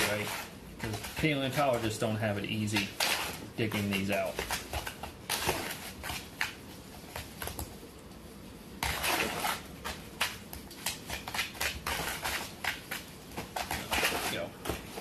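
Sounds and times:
spoon scraping plaster in tub: 0:00.0 - 0:04.7, 0:08.8 - 0:10.0.

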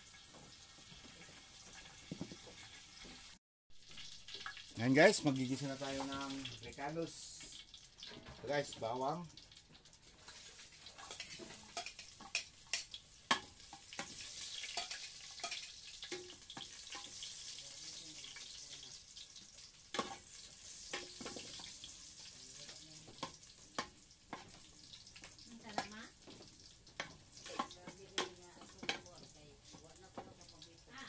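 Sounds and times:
garlic sizzling in oil: 0:00.0 - 0:31.0
spoon scraping a pot: 0:10.2 - 0:17.1.

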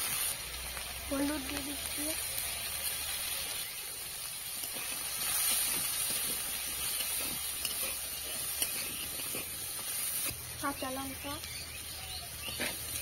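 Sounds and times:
potatoes sizzling in oil: 0:00.0 - 0:13.0
metal spatula scraping: 0:04.4 - 0:10.4, 0:12.4 - 0:13.0.

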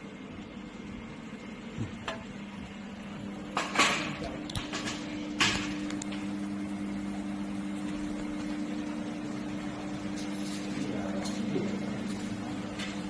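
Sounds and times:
welding machine and chiller humming: 0:00.0 - 0:13.0.

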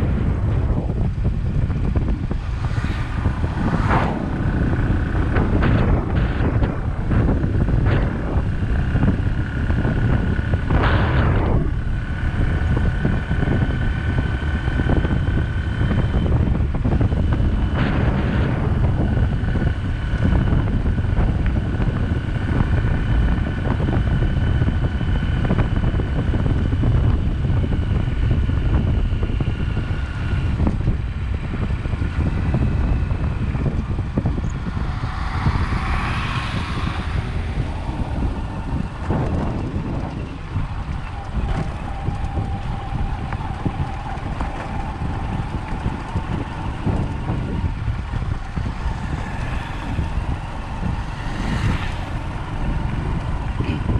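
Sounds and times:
faint steady whine: 0:00.0 - 0:53.9
vehicle rumble on road: 0:00.0 - 0:53.9
wind buffeting microphone: 0:00.0 - 0:53.9
hissing swells: 0:02.0 - 0:06.0, 0:33.8 - 0:45.0.

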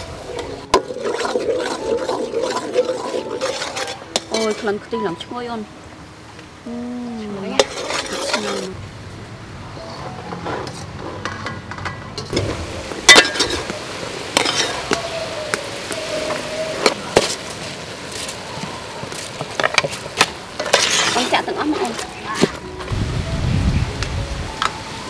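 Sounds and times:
low steady cooking noise: 0:00.0 - 0:22.6
metal ladle clinking against pot: 0:13.1 - 0:13.7.

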